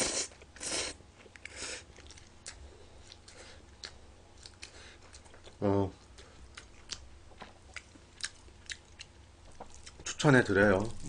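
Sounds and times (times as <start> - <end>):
wet chewing clicks: 1.2 - 5.6, 6.2 - 10.0.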